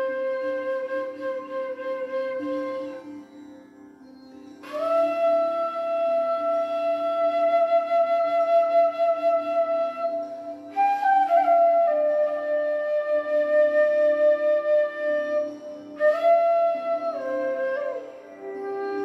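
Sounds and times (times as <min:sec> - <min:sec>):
bamboo flute melody: 0:00.0 - 0:19.0.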